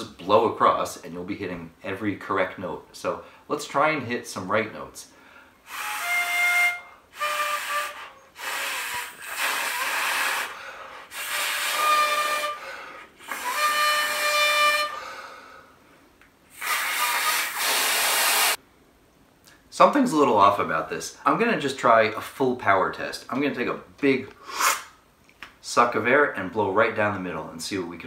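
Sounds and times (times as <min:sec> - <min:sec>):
toy harmonica notes: 0:05.7 - 0:15.0.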